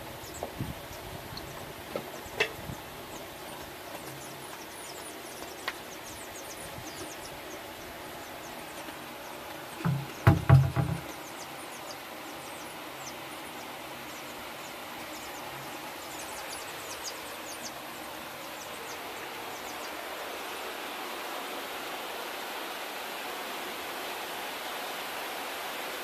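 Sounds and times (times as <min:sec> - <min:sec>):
heavy rain hissing: 0:00.0 - 0:26.0
chicks peeping: 0:00.2 - 0:20.0.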